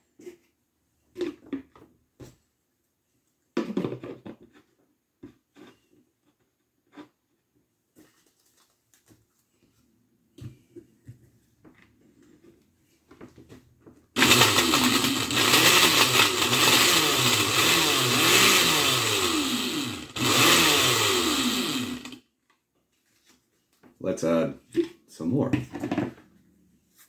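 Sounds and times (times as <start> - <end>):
blender chopping cards: 14.2 - 22.2.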